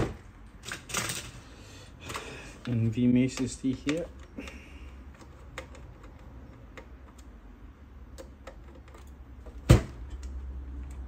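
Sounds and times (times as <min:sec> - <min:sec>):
screwdriver clicks and taps on computer parts: 0:02.1 - 0:04.4.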